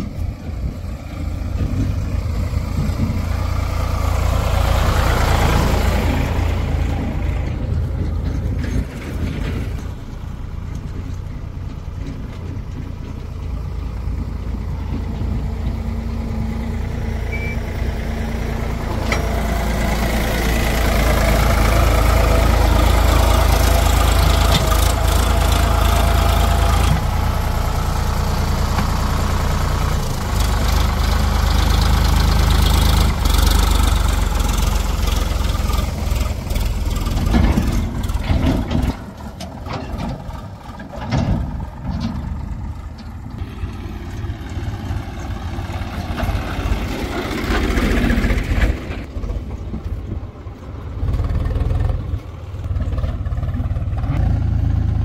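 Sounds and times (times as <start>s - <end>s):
heavy diesel engine under load: 0.0s - 55.0s
metal knocks and clanks: 7.0s - 10.0s, 36.6s - 43.4s.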